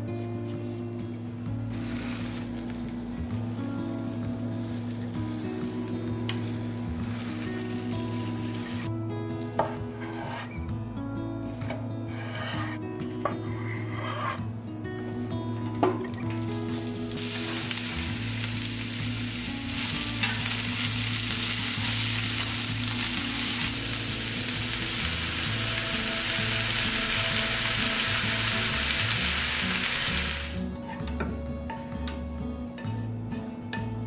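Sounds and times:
food sizzling in a pan: 1.7s - 8.9s, 16.0s - 30.6s.

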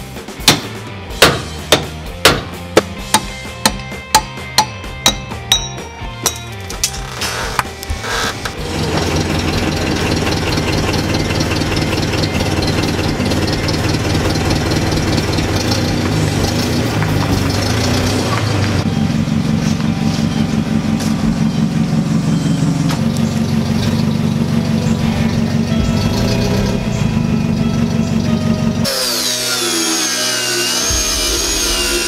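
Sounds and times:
forklift engine running: 6.6s - 32.0s.

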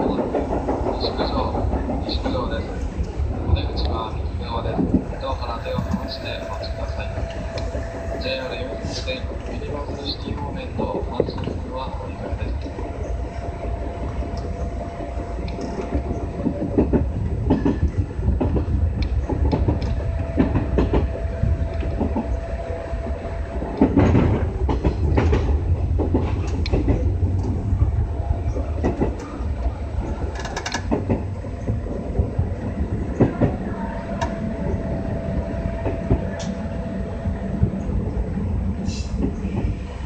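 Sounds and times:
wheels clacking over rail joints: 0.0s - 36.7s
steady train hum: 0.0s - 40.0s
train rumble: 0.0s - 40.0s.

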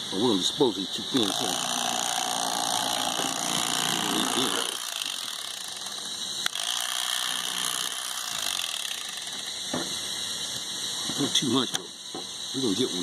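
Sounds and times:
electric knife cutting fish: 1.2s - 10.0s.

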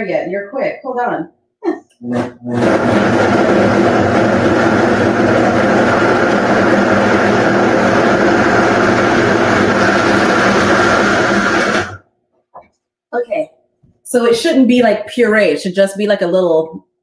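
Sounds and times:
blender chopping vegetables: 2.0s - 12.0s.

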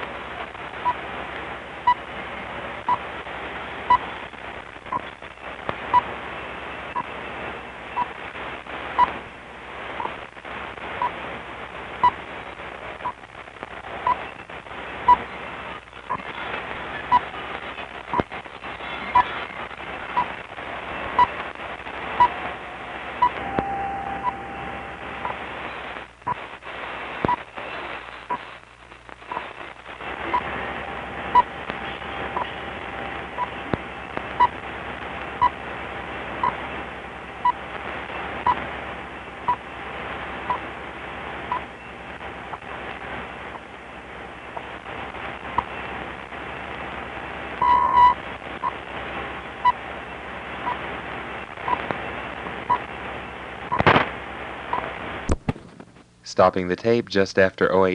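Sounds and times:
shortwave radio hiss: 0.0s - 57.9s
time signal ticks: 23.2s - 24.4s
long time signal beep: 23.2s - 25.4s
faint steady whistle: 23.4s - 24.6s.

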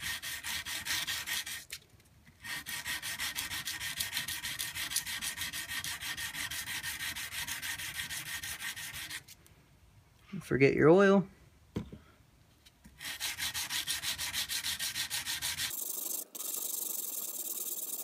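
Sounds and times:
sandpaper rubbing on steel blade: 0.0s - 1.8s, 2.4s - 9.4s, 13.0s - 18.0s.

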